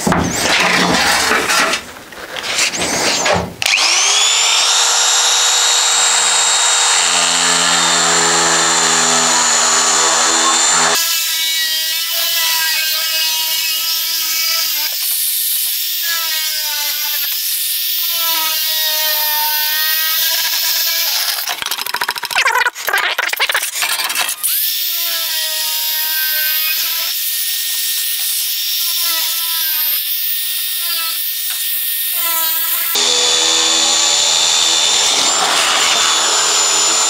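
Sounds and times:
shear cutting sheet steel: 0.0 - 22.1, 23.5 - 37.0
metal shear motor whine: 32.9 - 37.0.

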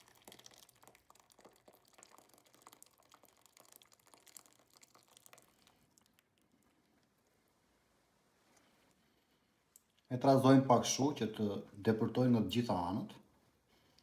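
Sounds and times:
thick sauce pouring into metal pan: 0.0 - 6.9.

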